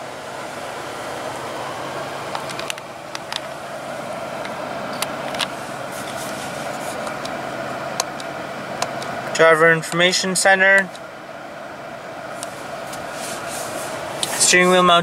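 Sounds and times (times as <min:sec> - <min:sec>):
car cabin hum and air noise: 0:00.0 - 0:15.0.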